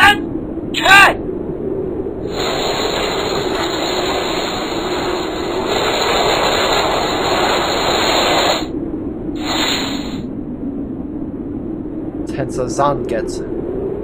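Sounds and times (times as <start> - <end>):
rushing whoosh: 2.2 - 8.7, 9.3 - 10.4.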